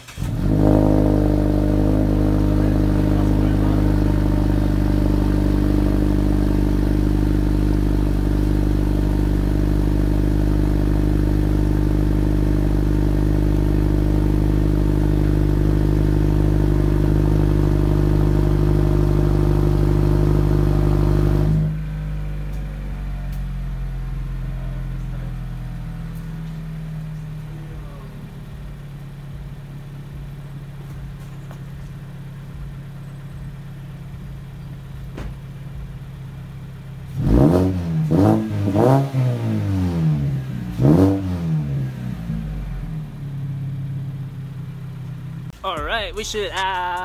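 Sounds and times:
car engine idling and revving: 0.0s - 47.0s.

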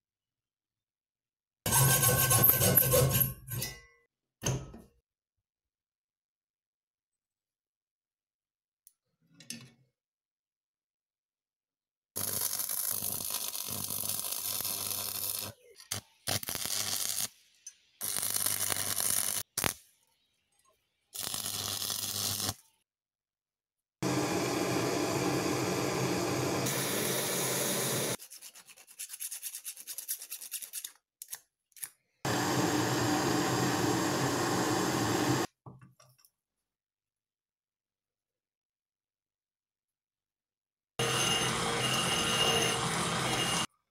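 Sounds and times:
welding arc crackling: 12.2s - 15.6s, 16.2s - 17.4s, 18.0s - 19.8s, 21.2s - 22.6s
gas blowtorch hissing: 24.0s - 28.2s, 32.3s - 35.5s.

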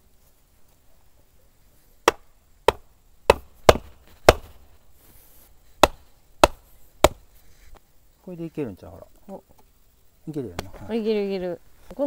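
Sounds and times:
log knocking wooden stake: 2.0s - 4.6s, 5.8s - 7.3s.

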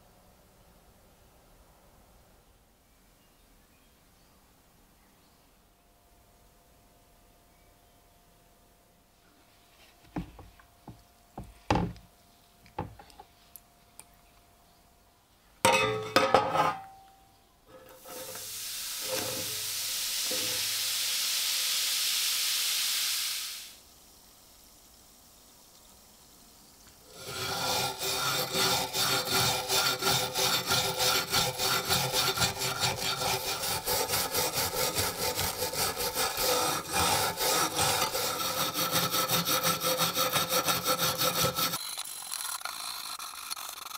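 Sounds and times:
steady hiss: 17.6s - 39.1s
wire brush scrubbing metal: 17.7s - 20.7s, 27.1s - 41.8s.

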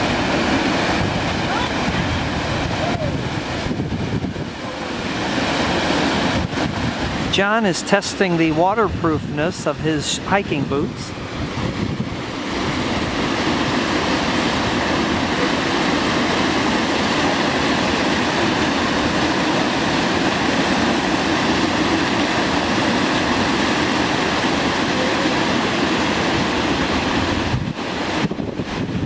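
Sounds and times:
waterfall rushing over rocks: 0.0s - 29.0s.

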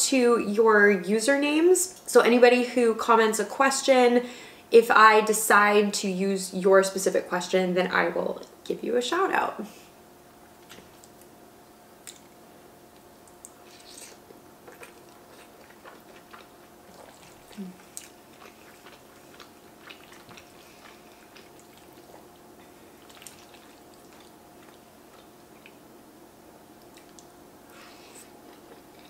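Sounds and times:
faint steady hum: 0.0s - 29.0s
wet chewing mouth sounds: 13.2s - 25.8s, 26.8s - 29.0s.

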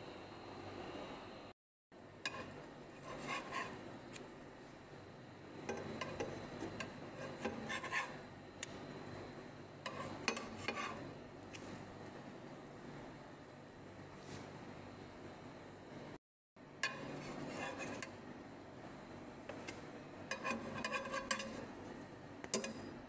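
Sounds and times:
spatula scraping a frying pan: 2.2s - 3.8s, 5.7s - 8.3s, 9.8s - 11.2s, 16.8s - 18.2s, 19.5s - 21.8s.

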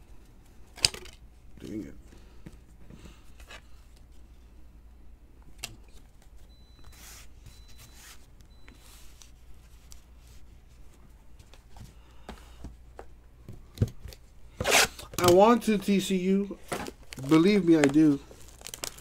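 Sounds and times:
cards rustling and flicking: 16.6s - 19.0s.

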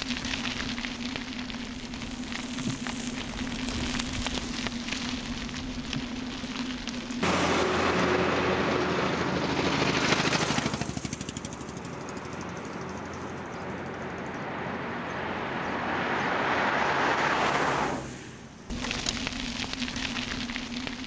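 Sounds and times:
vehicles passing on road: 7.0s - 18.7s.

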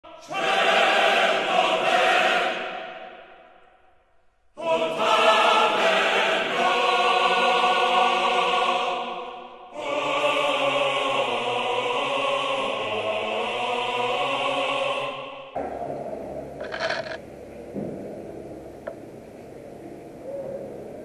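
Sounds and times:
choir singing sustained chords: 0.1s - 3.8s, 4.6s - 17.6s.

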